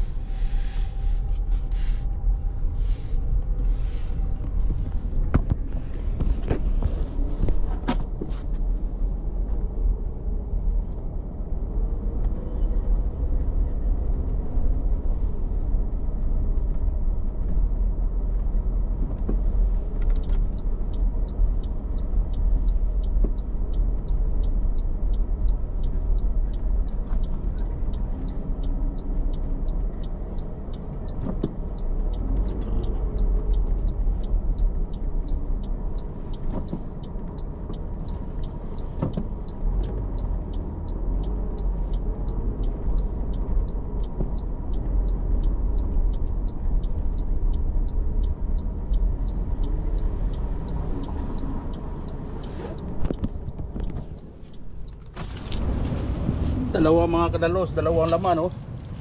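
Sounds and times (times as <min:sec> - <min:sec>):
engine and road rumble: 0:00.0 - 0:59.0.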